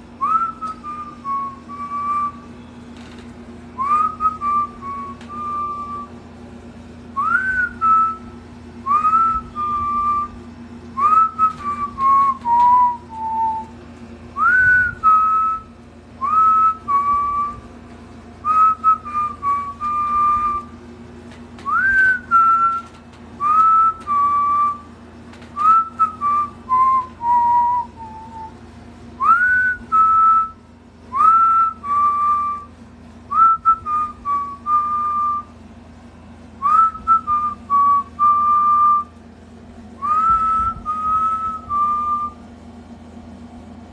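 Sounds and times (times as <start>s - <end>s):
steady low hum: 0.0s - 43.9s
person whistling a tune: 0.2s - 2.4s, 3.8s - 6.1s, 7.2s - 8.3s, 8.9s - 10.3s, 11.0s - 13.7s, 14.4s - 17.6s, 18.4s - 20.7s, 21.7s - 24.8s, 25.6s - 28.6s, 29.2s - 32.7s, 33.3s - 35.5s, 36.6s - 39.1s, 40.0s - 42.4s.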